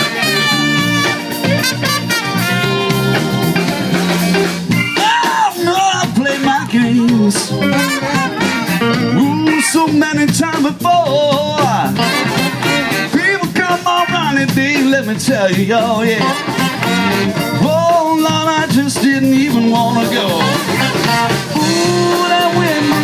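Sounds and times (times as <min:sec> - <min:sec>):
horns holding a chord: 0:00.0 - 0:04.8, 0:07.5 - 0:09.4
drums: 0:00.0 - 0:23.0
sliding bending guitar melody: 0:00.0 - 0:23.0.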